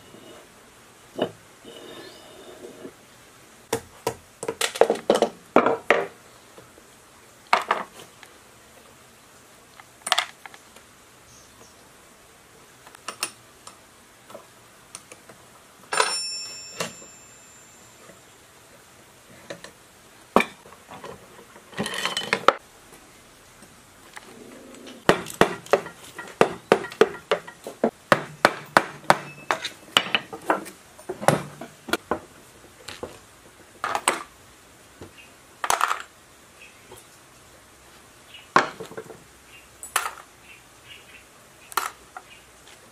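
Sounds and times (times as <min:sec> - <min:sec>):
metal piece ringing: 0:15.9 - 0:18.0, 0:28.7 - 0:30.1
steel parts and tools clinking: 0:15.9 - 0:18.2, 0:21.7 - 0:22.6, 0:25.2 - 0:27.8, 0:28.6 - 0:31.8.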